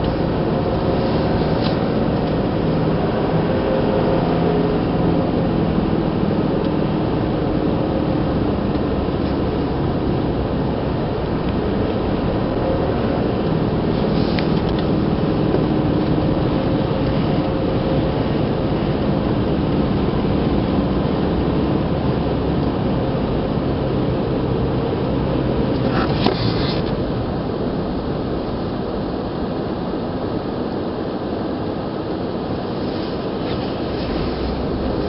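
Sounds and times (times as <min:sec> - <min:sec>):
car engine hum: 0:00.0 - 0:35.0
tyre noise: 0:25.7 - 0:27.0.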